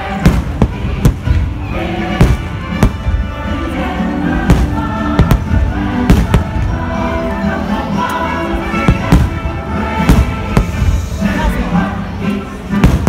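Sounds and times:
fireworks show music: 0.0 - 13.0.

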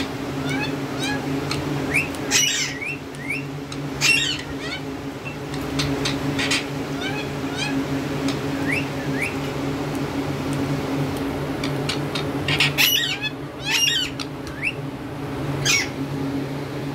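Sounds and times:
parakeets chirping: 0.0 - 9.6, 11.6 - 14.8, 15.6 - 16.0
steady low hum: 0.0 - 16.9
parakeets squawking shrilly: 0.4 - 7.9, 11.9 - 14.8, 15.6 - 16.0.

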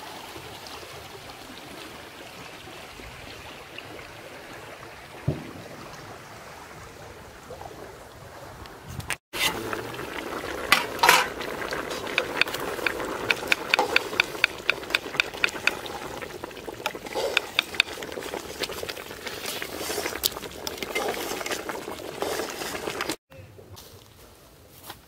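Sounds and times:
curry bubbling in a pot: 9.4 - 23.2
ladle scraping a metal pot: 9.4 - 23.2.

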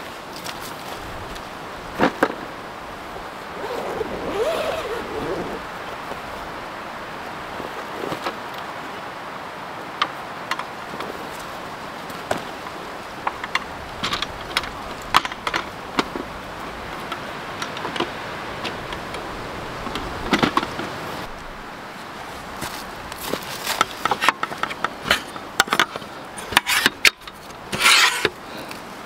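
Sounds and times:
camp table unfolding: 3.4 - 5.7, 23.6 - 28.4.

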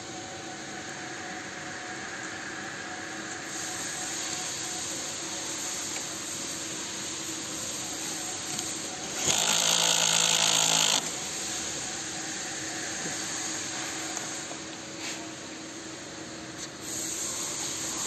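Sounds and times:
workshop hum: 0.0 - 18.0
power tool running: 8.4 - 11.3.

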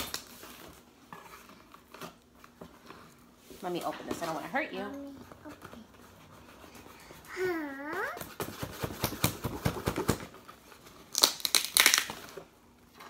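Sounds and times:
tape ripping: 11.0 - 12.4.

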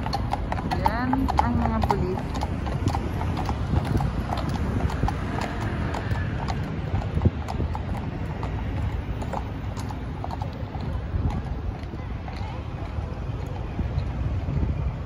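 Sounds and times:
city traffic: 0.0 - 15.0
hooves clip-clopping on asphalt: 0.0 - 15.0.

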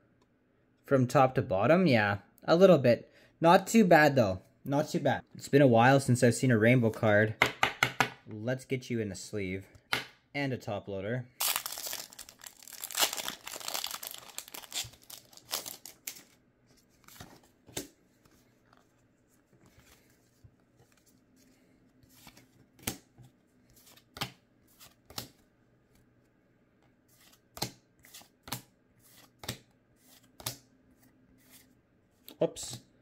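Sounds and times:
foil wrapper tearing and crinkling: 11.4 - 16.3.

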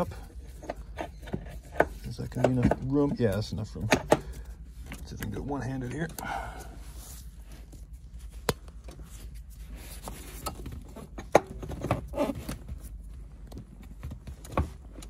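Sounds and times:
clicks and knocks of cables and bracket: 0.6 - 5.4
light rustling of gloves: 4.3 - 11.2.

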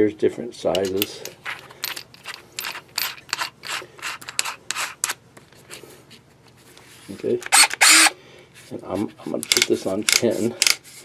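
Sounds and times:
drill chuck scraping: 1.5 - 5.2, 7.4 - 8.1.

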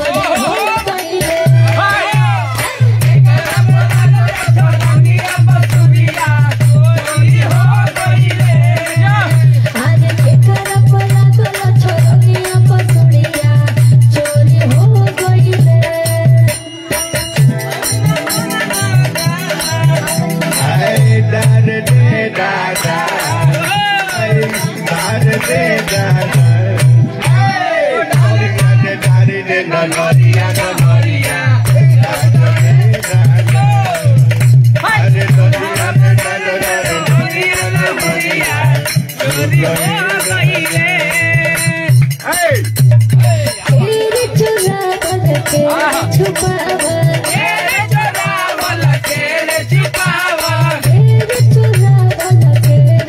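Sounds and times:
man singing into a microphone: 0.0 - 53.0
rattling percussion: 0.0 - 53.0
steady drum beat: 0.0 - 53.0
hand clapping: 0.2 - 8.1, 41.9 - 42.6
person singing folk song: 43.2 - 53.0.

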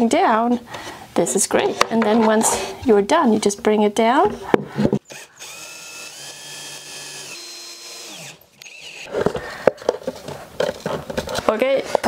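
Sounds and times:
cordless drill motor whine: 5.0 - 9.1.

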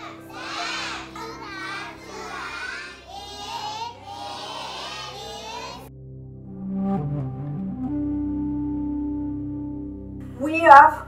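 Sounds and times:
children's voices: 0.0 - 5.9
quiet background music: 0.0 - 11.0.

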